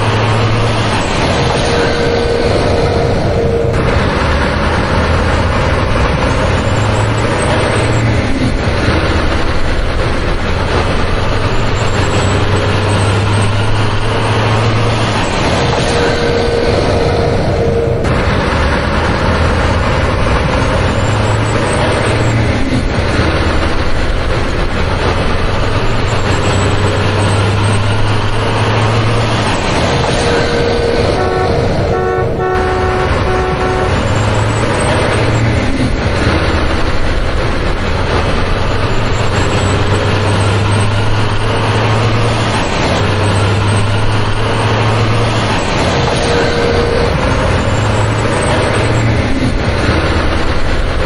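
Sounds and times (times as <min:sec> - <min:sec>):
heavy vehicle engine humming: 0:00.0 - 0:51.0
horn toots: 0:00.2 - 0:23.9, 0:30.1 - 0:37.2, 0:46.1 - 0:49.1.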